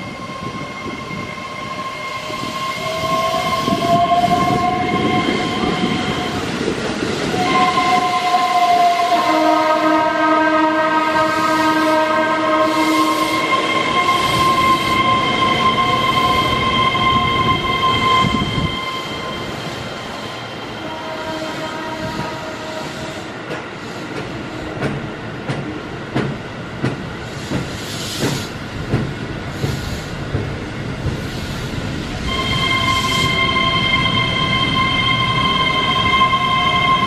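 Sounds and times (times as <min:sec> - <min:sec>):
train passing with whine: 0:00.0 - 0:37.0
train wheels clicking over rail joints: 0:22.8 - 0:32.0.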